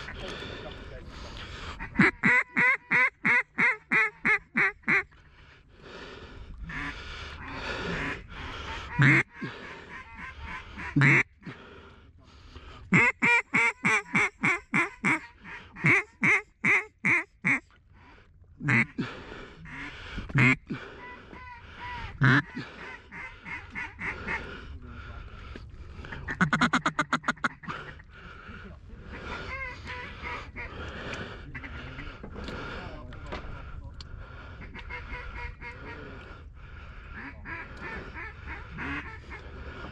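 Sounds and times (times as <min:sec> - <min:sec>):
fast chattering duck call: 0:01.8 - 0:05.0, 0:08.9 - 0:11.2, 0:15.8 - 0:17.6, 0:18.6 - 0:18.9, 0:22.2 - 0:24.4, 0:26.3 - 0:27.7, 0:37.2 - 0:39.2
duck call quacking: 0:01.8 - 0:05.1, 0:06.7 - 0:11.3, 0:12.9 - 0:17.6, 0:18.6 - 0:19.0, 0:19.6 - 0:24.4, 0:26.2 - 0:28.0, 0:29.1 - 0:30.8, 0:34.6 - 0:36.0, 0:37.1 - 0:39.5.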